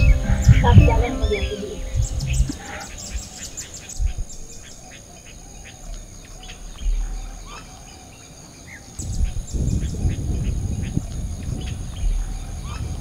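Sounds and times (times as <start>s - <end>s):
low rumble: 0.0s - 3.0s, 9.1s - 13.0s
birds chirping: 0.0s - 13.0s.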